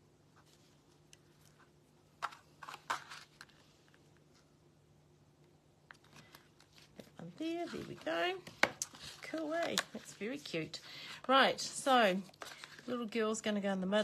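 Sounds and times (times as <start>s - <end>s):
paper taps and rustles: 8.3s - 10.2s.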